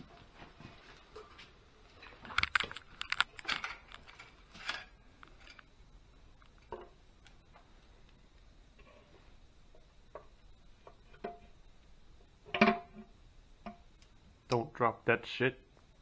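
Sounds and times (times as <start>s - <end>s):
clinks of small parts and tools: 2.3s - 5.7s.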